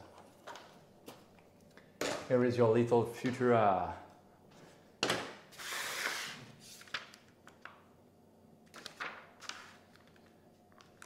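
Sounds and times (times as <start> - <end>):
paper rustling: 5.6 - 7.3, 8.7 - 11.0.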